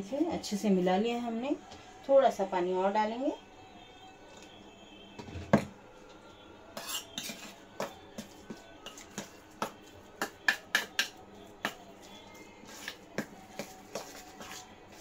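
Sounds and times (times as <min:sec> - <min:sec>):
metal spoon clinking in steel bowl: 0:06.8 - 0:07.9.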